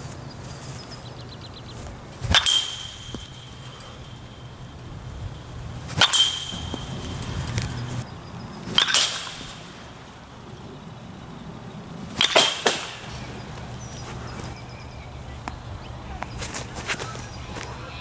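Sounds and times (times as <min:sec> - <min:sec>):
baseball bat hitting ball: 0:02.2 - 0:08.0, 0:08.6 - 0:10.8, 0:12.0 - 0:13.7.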